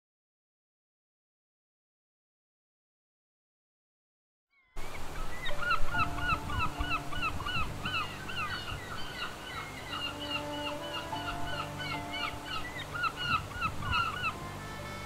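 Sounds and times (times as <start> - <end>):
birds honking: 5.0 - 15.0
low background music notes: 5.5 - 15.0.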